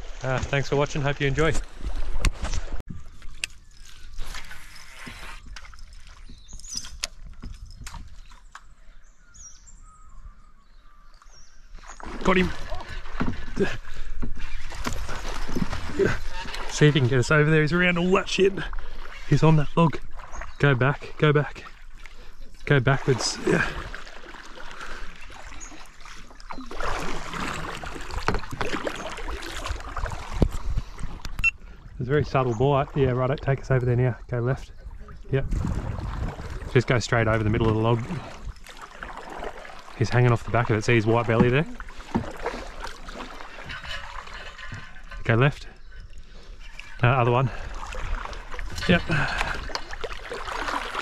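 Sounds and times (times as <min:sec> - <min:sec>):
paddle strokes swishing in water: 0:01.4 - 0:06.6, 0:11.6 - 0:32.0, 0:34.9 - 0:51.0
bird chirping: 0:06.2 - 0:12.1
paddle knocking against hull: 0:12.0 - 0:16.7, 0:26.7 - 0:31.3, 0:41.0 - 0:44.9.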